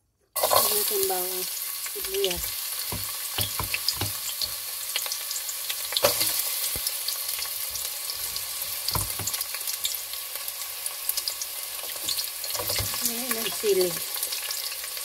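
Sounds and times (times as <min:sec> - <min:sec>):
garlic and onion sizzling in oil: 0:00.3 - 0:15.0
crackles and pops: 0:01.7 - 0:10.0.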